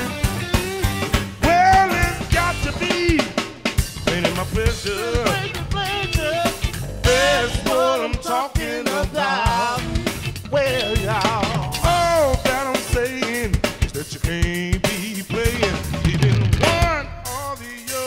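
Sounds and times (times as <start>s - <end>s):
bending lead melody: 0.0s - 8.2s, 9.5s - 12.8s
drum kit beat: 0.0s - 18.0s.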